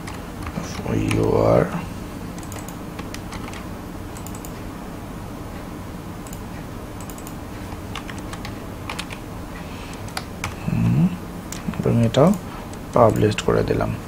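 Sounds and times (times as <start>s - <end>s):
keyboard keys and mouse clicking: 0.0s - 1.5s, 2.3s - 4.6s, 6.2s - 9.2s, 9.9s - 10.7s, 11.5s - 13.6s
steady low hum: 0.0s - 14.0s.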